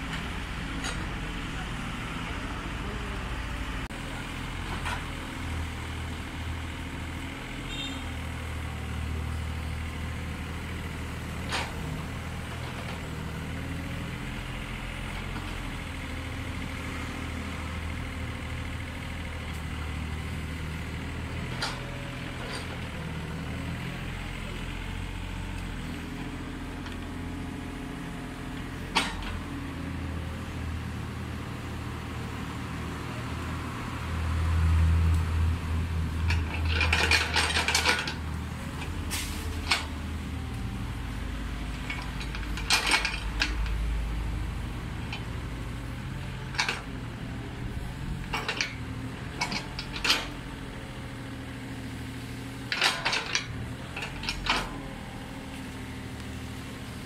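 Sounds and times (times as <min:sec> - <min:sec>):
excavator diesel engine running: 0:00.0 - 0:57.0
excavator clanks and knocks: 0:00.1 - 0:01.3, 0:04.6 - 0:05.2, 0:11.3 - 0:13.8, 0:15.1 - 0:16.1, 0:21.4 - 0:23.1, 0:28.6 - 0:29.8, 0:36.2 - 0:40.6, 0:41.6 - 0:50.6, 0:52.6 - 0:55.7.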